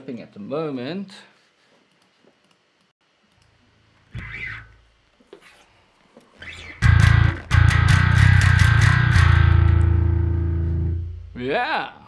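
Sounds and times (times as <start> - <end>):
electric bass guitar notes: 6.5 - 11.5.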